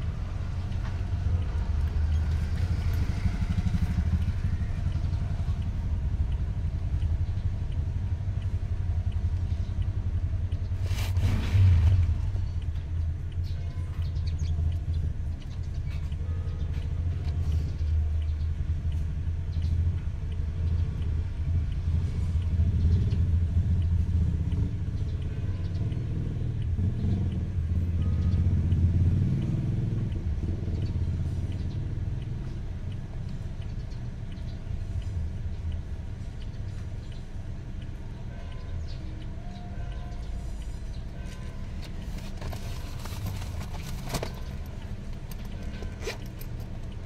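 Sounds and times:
vehicle rumble inside car: 0.0s - 28.9s, 39.0s - 47.0s.

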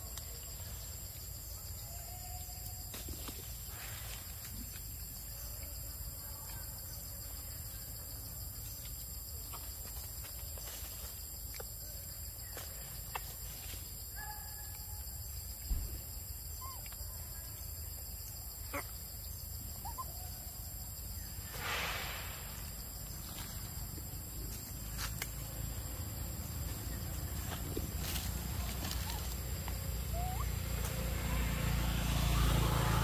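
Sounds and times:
high insect drone: 0.0s - 33.0s
thump: 15.7s - 16.0s
rustling hiss: 21.2s - 23.9s
short chirping calls: 30.1s - 30.8s.

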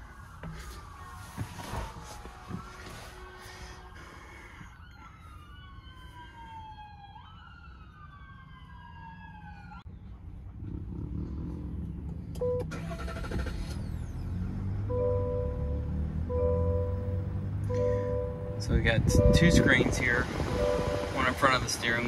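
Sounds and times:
emergency siren wailing: 0.0s - 9.9s, 12.4s - 22.0s
low steady rumble: 9.9s - 21.4s.

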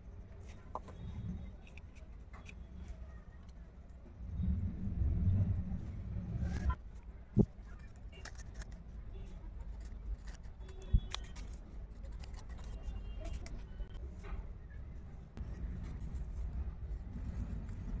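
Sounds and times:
low steady rumble: 3.6s - 7.8s
stiff paper crinkling: 7.6s - 14.0s.

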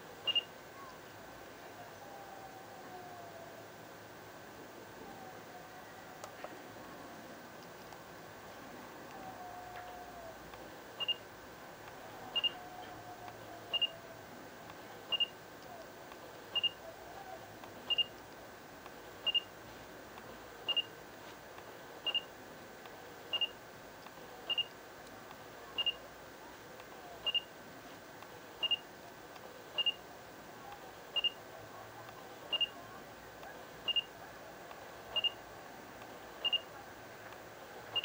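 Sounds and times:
camera autofocus beep: 0.3s - 0.5s, 11.0s - 11.2s, 12.4s - 12.6s, 13.7s - 14.0s, 15.1s - 15.4s, 16.6s - 16.8s, 17.9s - 18.1s, 19.3s - 19.5s, 20.7s - 20.9s, 22.0s - 22.3s, 23.3s - 23.6s, 24.5s - 24.7s, 25.8s - 26.0s, 27.2s - 27.5s, 28.6s - 28.8s, 29.8s - 30.0s, 31.2s - 31.4s, 32.5s - 32.8s, 33.9s - 34.1s, 35.2s - 35.4s, 36.4s - 36.7s.

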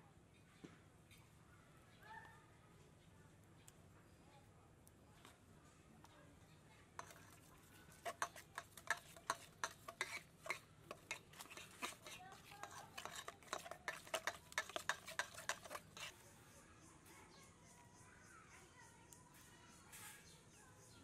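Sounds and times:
utensil beating egg in metal bowl: 7.0s - 16.2s.

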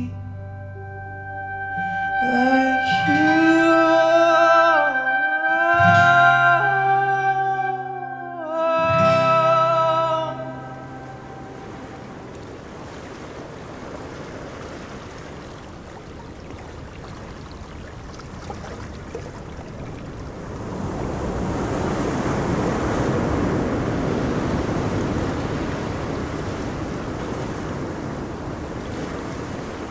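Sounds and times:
waves lapping: 1.7s - 29.9s
wind on microphone: 8.6s - 29.9s.

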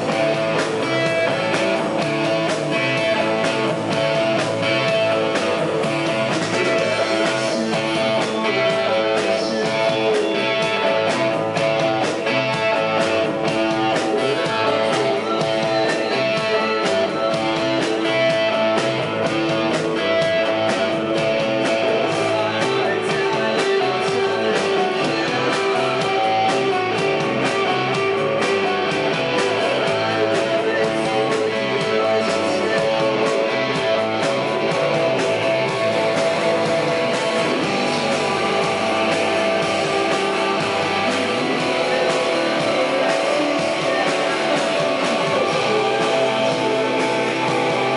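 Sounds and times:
electric guitar: 0.0s - 47.9s
steady drum beat: 0.0s - 47.9s.

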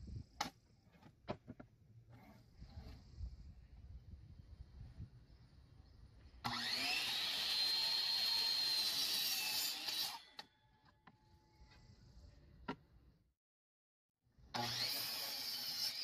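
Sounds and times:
miter saw cutting wood: 6.4s - 10.5s, 14.5s - 16.0s.

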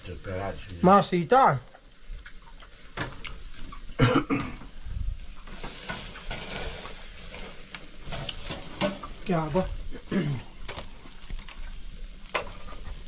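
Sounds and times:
meat sizzling over fire: 0.0s - 13.0s
person coughing: 4.0s - 4.6s, 10.0s - 10.5s.

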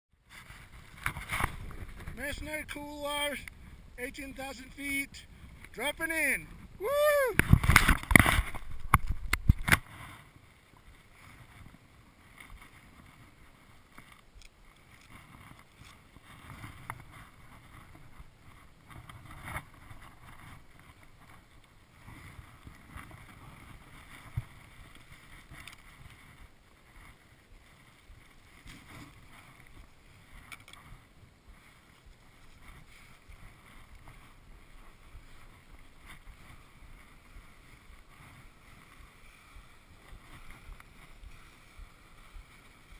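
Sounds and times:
skis scraping over snow: 0.2s - 42.9s
wind on microphone: 0.2s - 42.9s.

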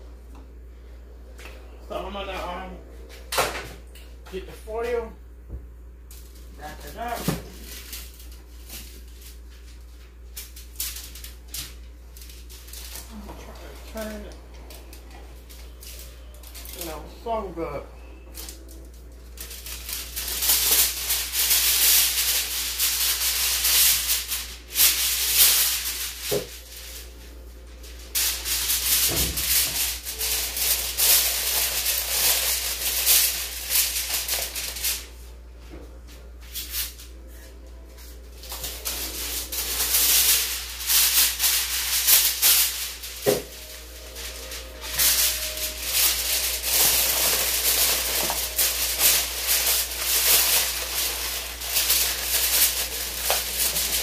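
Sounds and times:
aluminium foil crinkling: 6.1s - 35.3s, 36.4s - 54.0s.

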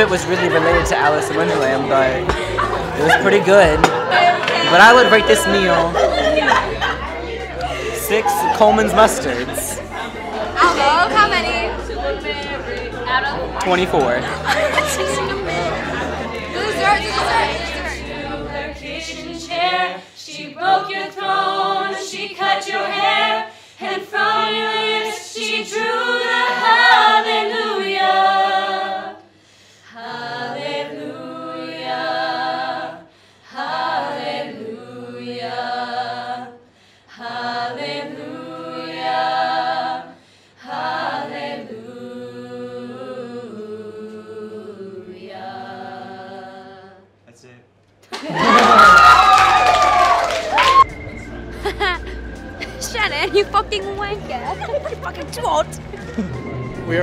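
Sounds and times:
young singers singing a cappella: 0.0s - 47.2s.

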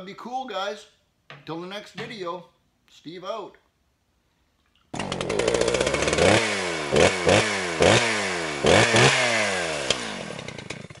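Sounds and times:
engine revving in blips: 5.0s - 10.4s.

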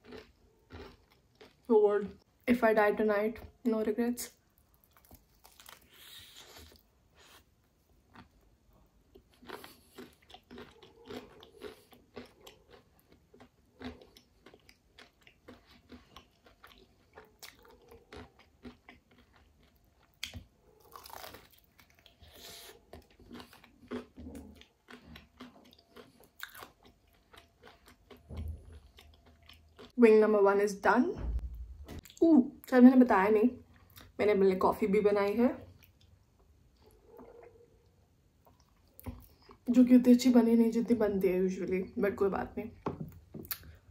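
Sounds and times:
crunching bites of fried chicken: 0.0s - 1.7s, 4.9s - 7.4s
wet chewing: 0.0s - 2.3s, 4.5s - 30.0s.

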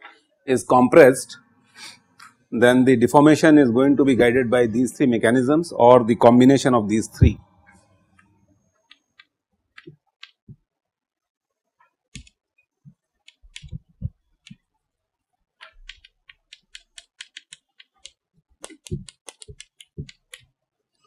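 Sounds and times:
chalk tapping on blackboard: 15.6s - 20.5s.

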